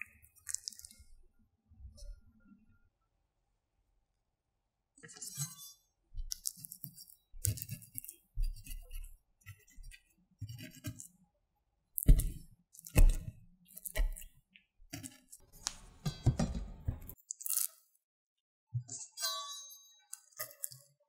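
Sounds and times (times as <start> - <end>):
knife cutting through fat: 6.3 - 11.1, 12.0 - 14.3
knife tip knocking on cutting board: 16.0 - 17.2.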